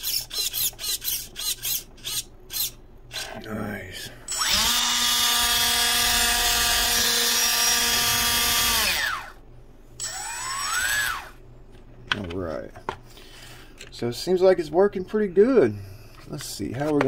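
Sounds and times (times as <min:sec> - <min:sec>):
electric motor whining: 0:04.3 - 0:09.4, 0:10.0 - 0:11.4.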